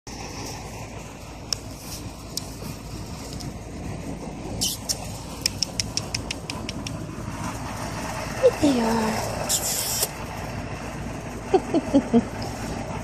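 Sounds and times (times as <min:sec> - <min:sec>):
low rumbling background noise: 0:00.1 - 0:13.0
sharp clicks: 0:04.6 - 0:07.0.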